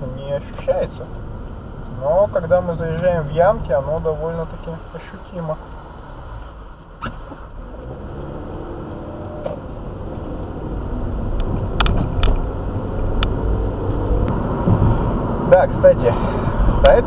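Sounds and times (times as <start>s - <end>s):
car engine and road rumble: 0.0s - 17.0s
sharp clicks: 0.5s - 13.4s.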